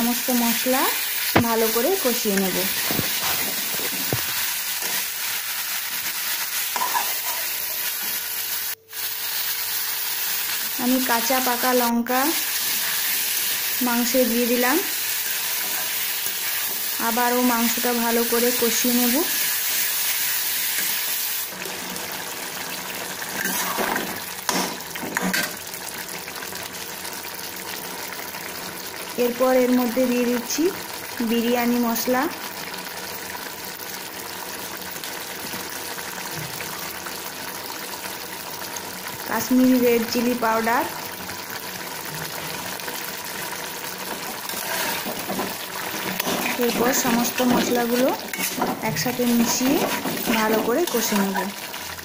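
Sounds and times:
chicken sizzling in a pan: 0.0 - 52.0
metal spatula scraping: 6.8 - 8.1, 23.4 - 24.6, 44.5 - 51.3.

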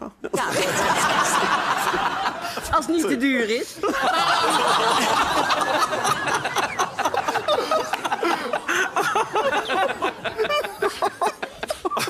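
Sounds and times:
audience laughing: 0.3 - 12.0.

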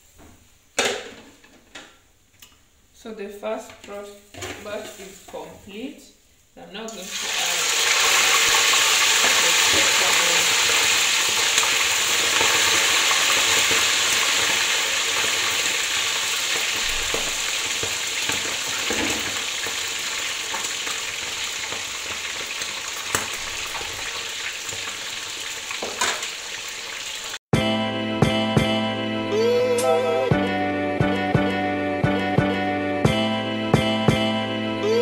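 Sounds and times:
chicken deep frying in oil: 7.0 - 27.4.

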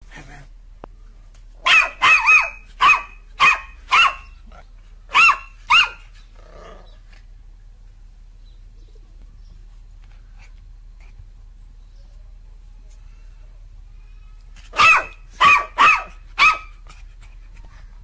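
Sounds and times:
puppy barking: 1.6 - 4.4, 5.1 - 6.1, 14.7 - 16.8.

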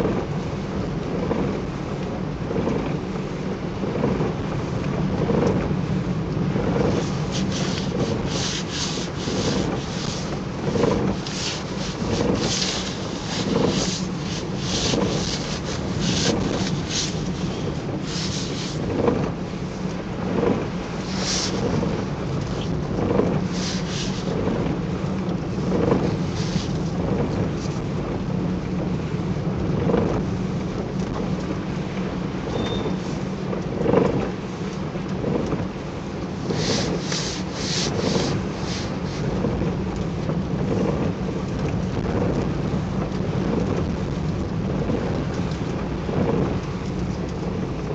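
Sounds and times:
car cabin road drone: 0.0 - 47.9
rain suit fabric rustling: 6.6 - 19.4, 20.3 - 27.8, 36.3 - 39.6.

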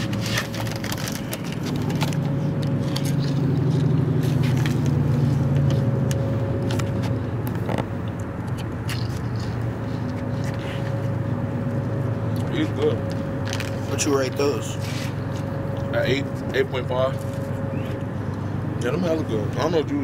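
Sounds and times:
chips being eaten: 0.0 - 11.1
car engine and road noise: 0.0 - 20.0.

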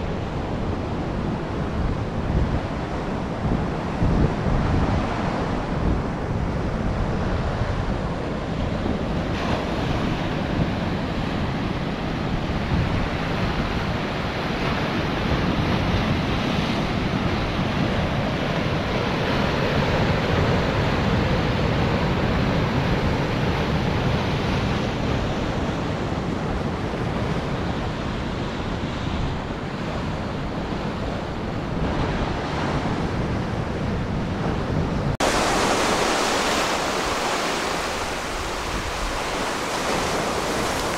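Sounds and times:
wind rumbling on microphone: 0.0 - 40.9
surf breaking on beach: 35.2 - 40.9.

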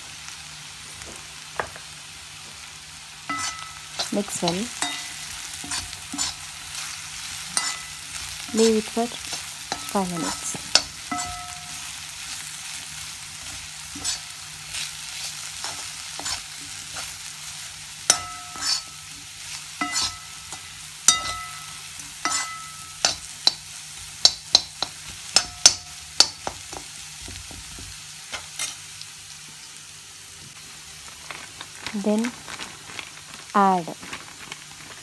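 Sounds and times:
potatoes sizzling in a pan: 0.0 - 35.0
spatula clinking against pan: 3.3 - 6.4, 7.6 - 8.0, 9.3 - 11.9, 18.1 - 19.0, 19.8 - 26.9.

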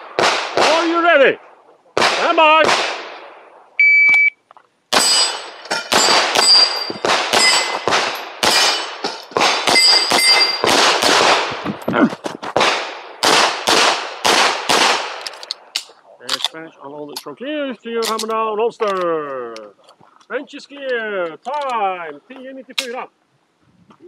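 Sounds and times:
pistol shots: 0.0 - 1.0, 2.0 - 3.3, 4.9 - 11.7, 12.6 - 15.9
steel target plates pinging: 4.9 - 10.8.

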